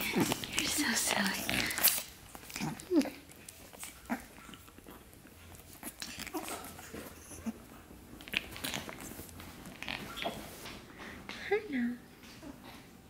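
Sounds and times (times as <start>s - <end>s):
puppies chewing and scuffling: 0.0s - 11.4s.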